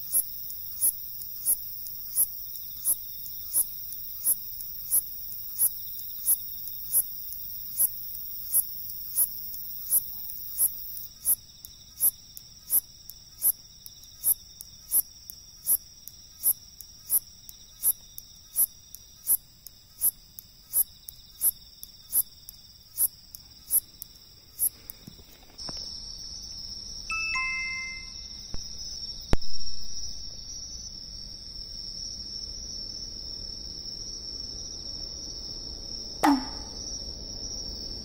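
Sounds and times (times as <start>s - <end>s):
katydid chirping: 0.0s - 25.0s, 27.1s - 30.6s, 36.2s - 37.6s
high insect drone: 0.0s - 38.0s
high insect trill: 0.0s - 38.0s.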